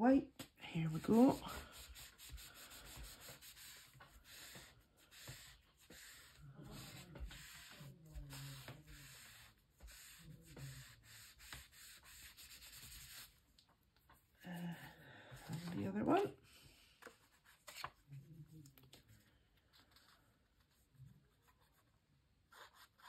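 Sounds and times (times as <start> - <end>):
tissue rubbing on paper: 0.9 - 13.5.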